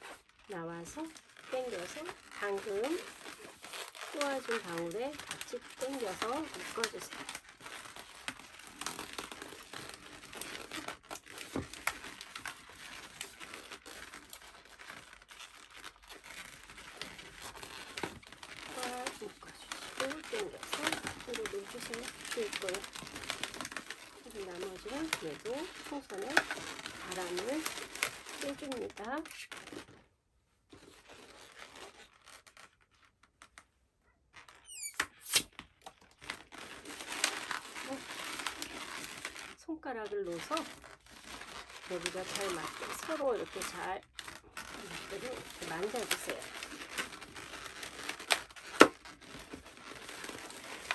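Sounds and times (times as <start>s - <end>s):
rubber balloons rubbing and crackling: 0.0s - 50.9s
balloon squeak: 1.1s - 29.8s, 34.4s - 39.6s.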